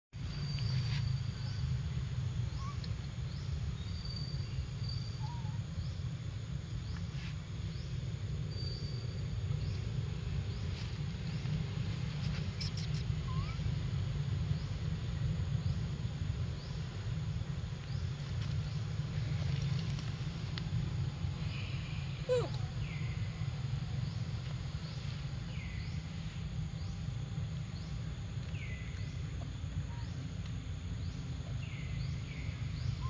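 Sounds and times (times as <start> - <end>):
insects chirping: 0.2 - 33.0
low rumble: 0.2 - 33.0.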